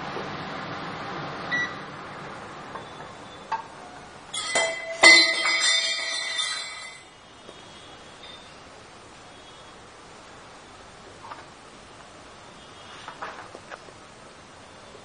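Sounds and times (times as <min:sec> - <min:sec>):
ladle clinking against metal pot: 0:04.3 - 0:07.0.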